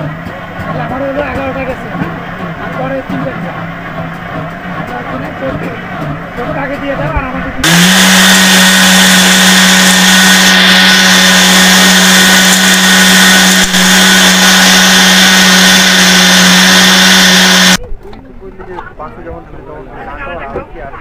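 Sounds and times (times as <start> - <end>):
blender motor whining: 7.6 - 17.8.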